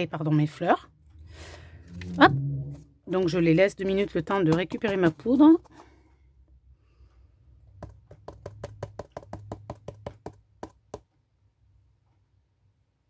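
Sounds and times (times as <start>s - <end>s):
tapping on plastic box: 7.7s - 11.1s.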